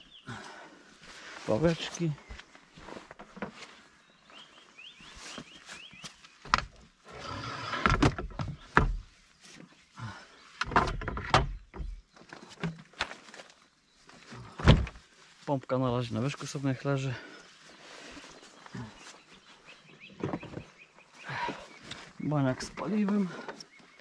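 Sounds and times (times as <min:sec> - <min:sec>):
rustling and scraping: 0:01.1 - 0:04.1, 0:05.0 - 0:09.9, 0:10.5 - 0:15.5.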